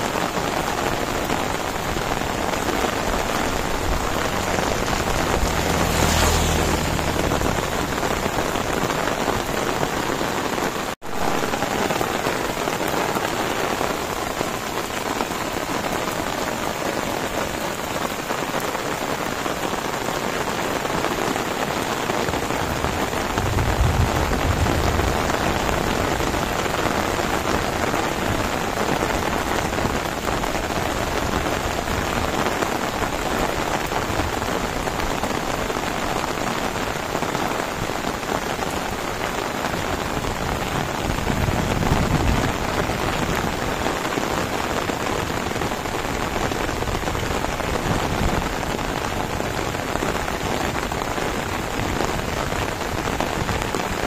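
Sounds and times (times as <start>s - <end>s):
heavy rain falling: 0.0s - 54.0s
low rumbles: 2.7s - 9.6s, 22.6s - 26.8s.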